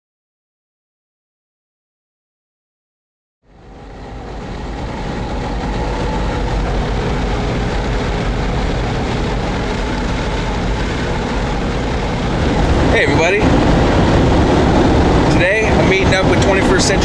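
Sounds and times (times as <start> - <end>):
moving vehicle low rumble: 3.4 - 17.0.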